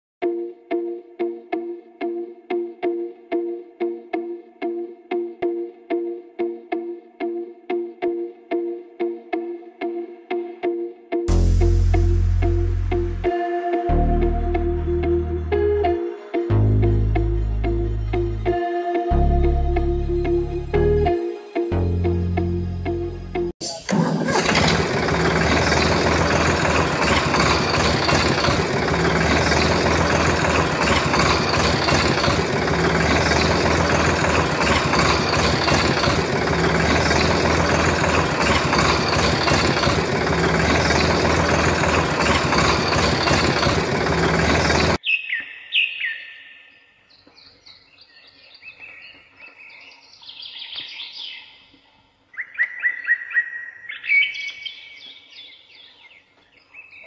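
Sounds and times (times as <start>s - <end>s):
loud soundtrack with engine drone: 11.3s - 18.6s, 21.8s - 45.0s
birds chirping and trilling: 44.6s - 57.0s.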